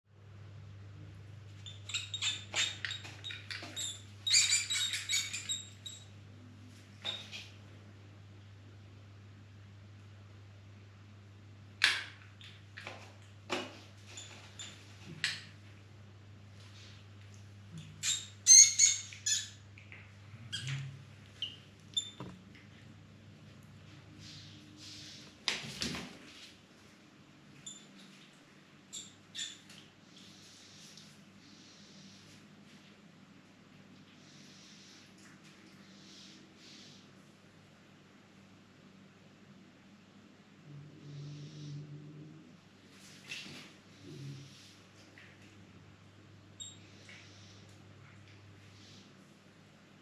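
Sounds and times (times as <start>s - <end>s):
mouse squeaking: 1.6s - 6.1s, 18.0s - 19.6s, 20.5s - 22.3s, 28.9s - 29.6s, 46.6s - 46.8s.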